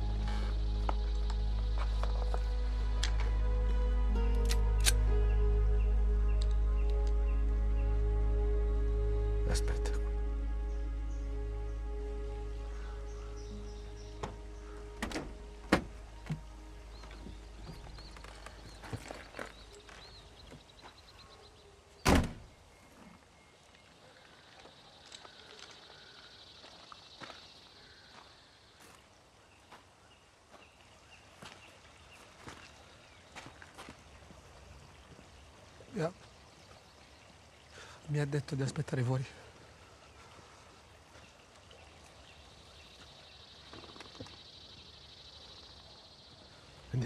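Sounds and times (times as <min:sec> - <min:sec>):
car door thunk: 0:15.0 - 0:16.4, 0:22.1 - 0:22.5
insects chirring: 0:42.5 - 0:47.0.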